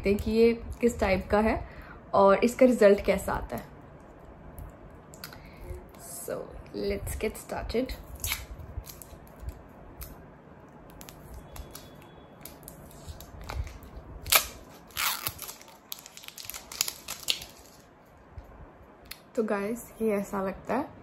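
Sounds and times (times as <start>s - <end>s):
packaging clicks and rustling: 11.0s - 17.9s.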